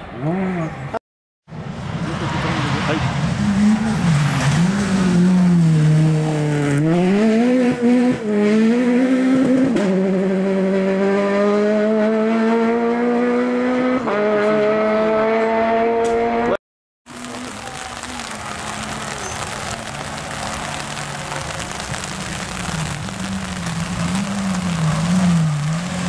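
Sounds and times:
rally car engine revving: 1.6 - 16.6, 17.2 - 26.0
tyres hissing on gravel: 17.1 - 26.0.

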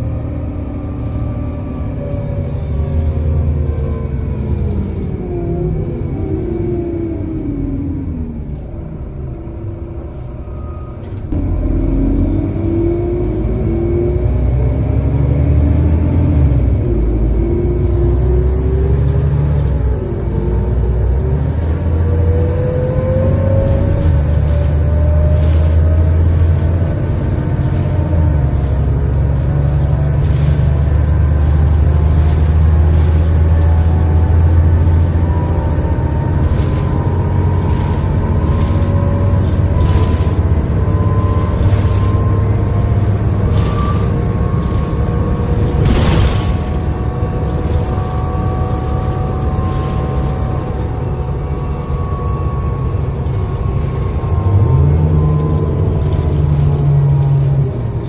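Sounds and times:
bus engine and ventilation hum: 0.0 - 58.0.

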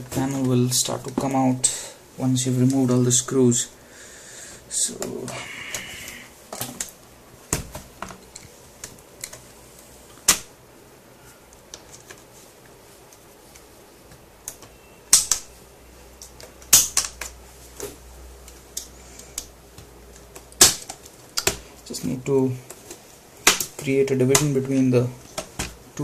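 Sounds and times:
plastic clips snapping: 14.4 - 15.5, 16.2 - 17.4, 18.4 - 21.6.

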